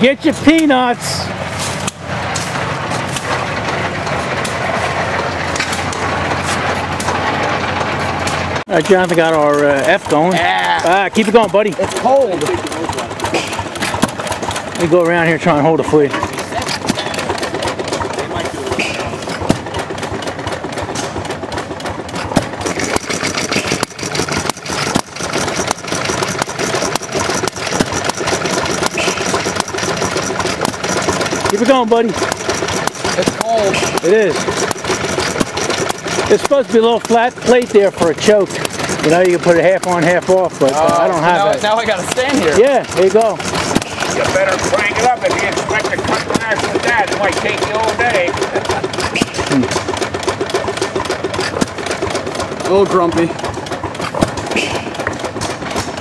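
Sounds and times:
machinery running: 0:00.0 - 0:56.0.

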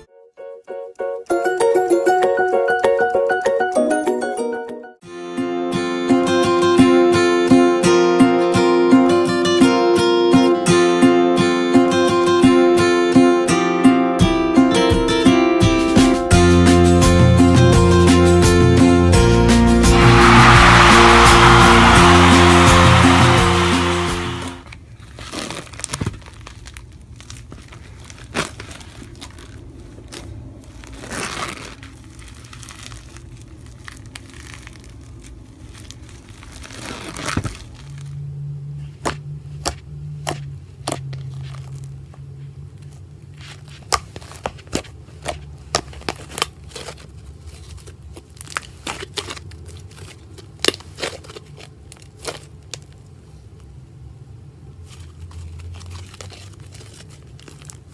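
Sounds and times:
slime crackling and crunching: 0:25.0 - 0:38.2.

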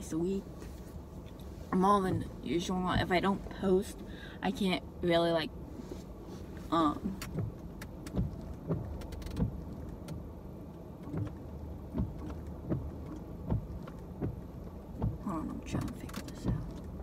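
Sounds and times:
windshield wipers thumping: 0:00.0 - 0:05.0, 0:06.0 - 0:17.0
steady low hum: 0:00.0 - 0:17.0.

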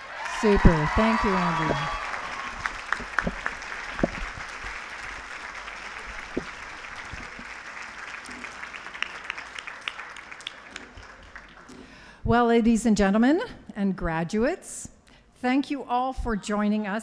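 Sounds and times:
audience applause: 0:00.0 - 0:11.9.

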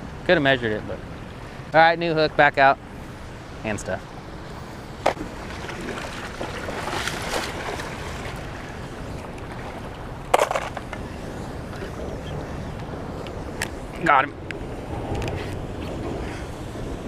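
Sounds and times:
churning water rushing: 0:00.0 - 0:17.0
fishing gear clicks and knocks: 0:10.3 - 0:11.0.

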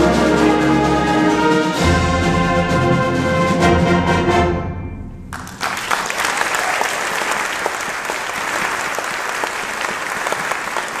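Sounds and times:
audience applause: 0:05.3 - 0:11.0.

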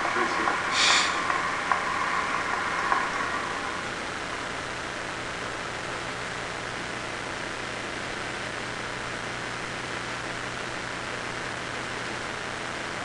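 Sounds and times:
large crowd applauding: 0:00.0 - 0:04.0.

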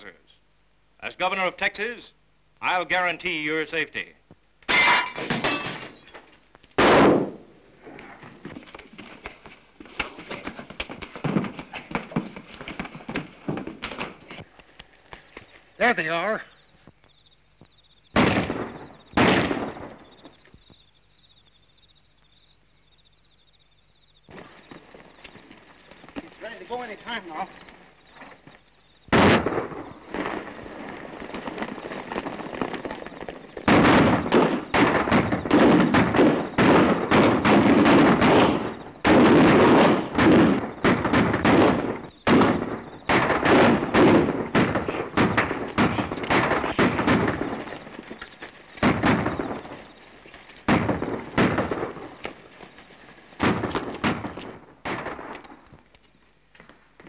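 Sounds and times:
gunshots: 0:06.8 - 0:08.2, 0:10.0 - 0:14.4, 0:18.1 - 0:20.4, 0:29.1 - 0:55.6.

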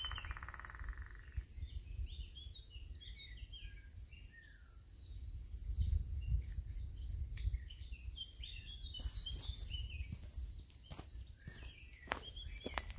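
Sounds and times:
high insect drone: 0:00.0 - 0:12.9
birds chirping: 0:06.2 - 0:12.9.

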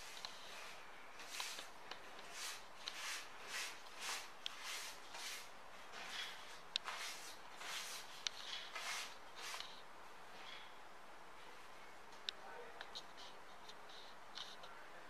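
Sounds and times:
tissue rubbing on paper: 0:00.0 - 0:09.8.

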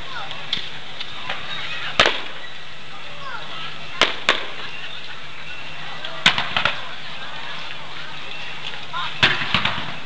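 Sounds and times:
fireworks bangs: 0:01.2 - 0:02.5, 0:04.0 - 0:04.8, 0:06.2 - 0:07.0, 0:09.2 - 0:10.0.

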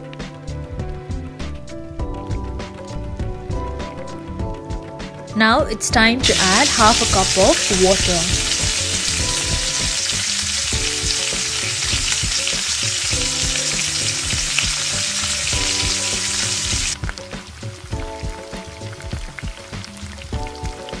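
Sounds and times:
semolina sizzling in frying pan: 0:06.2 - 0:21.0.

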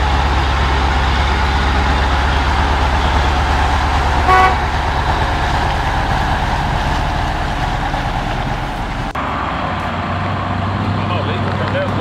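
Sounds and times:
truck diesel engine throbbing: 0:00.0 - 0:12.0
truck horn toot: 0:00.1 - 0:05.0.

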